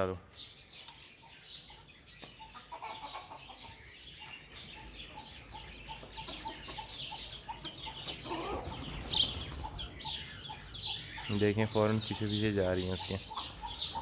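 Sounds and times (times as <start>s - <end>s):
chickens clucking: 0.0s - 14.0s
high chirping: 0.0s - 14.0s.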